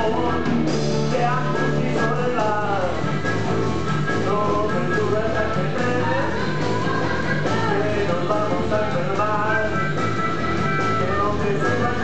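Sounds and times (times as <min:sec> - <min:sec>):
blues-rock band playing: 0:00.0 - 0:12.0
harmonica wailing: 0:09.2 - 0:12.0.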